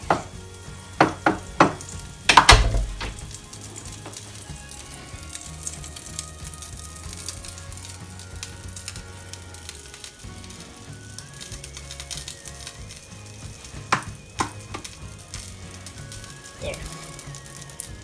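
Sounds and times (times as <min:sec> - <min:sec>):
fat sizzling in a frying pan: 0:00.0 - 0:18.0
sharp knocks: 0:01.0 - 0:03.4.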